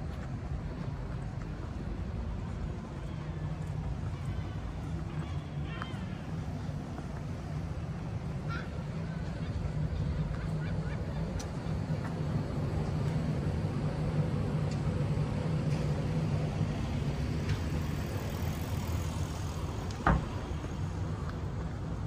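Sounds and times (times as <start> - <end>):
vehicle engine rumbling: 0.0 - 22.0
thump: 20.0 - 20.3.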